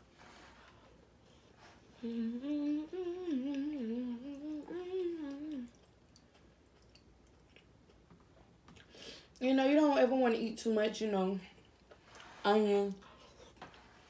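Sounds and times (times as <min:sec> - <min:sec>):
woman humming: 0:02.0 - 0:05.8.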